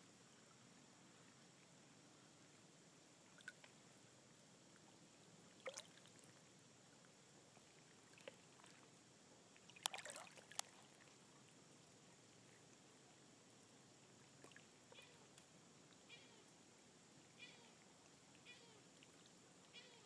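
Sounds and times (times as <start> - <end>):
low hiss: 0.0 - 20.0
water lapping on rocky shore: 9.7 - 11.2.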